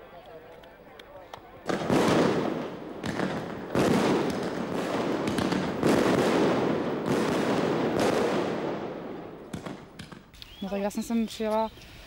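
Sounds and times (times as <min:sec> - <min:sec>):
fireworks bangs and rumble: 0:01.6 - 0:10.3.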